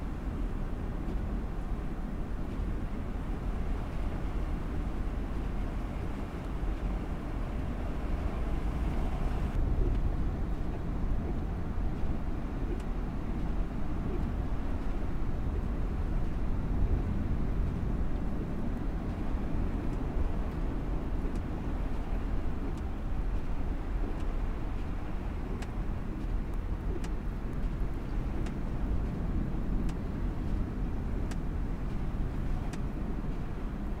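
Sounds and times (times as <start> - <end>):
car driving on snowy road: 0.0 - 34.0
faint ticks: 28.4 - 29.2, 31.2 - 32.0.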